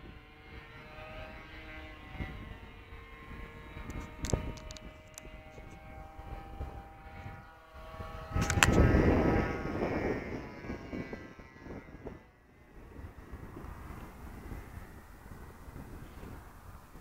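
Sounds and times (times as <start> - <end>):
model airplane motor whining: 0.0 - 17.0
wind buffeting microphone: 0.0 - 17.0
microphone handling clicks: 3.8 - 5.8, 8.4 - 9.0.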